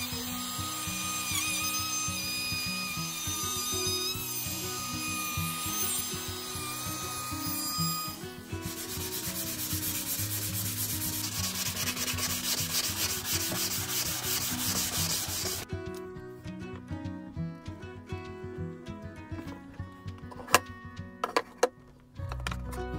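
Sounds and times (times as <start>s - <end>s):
background music: 0.0s - 22.9s
sanding sponge rubbing wood: 8.6s - 15.6s.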